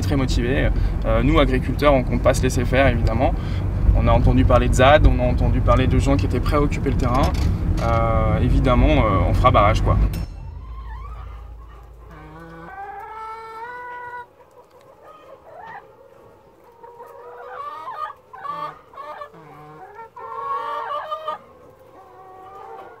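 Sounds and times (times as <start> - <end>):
hens clucking and calling: 10.6 - 23.0.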